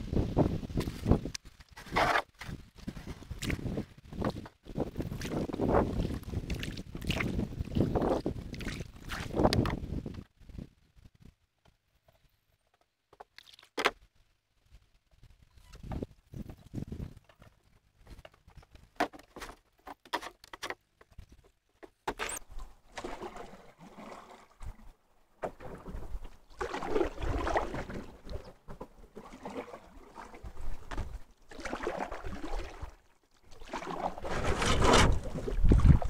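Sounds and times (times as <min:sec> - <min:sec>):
paddle splashing water: 0:01.6 - 0:09.8, 0:21.9 - 0:36.0.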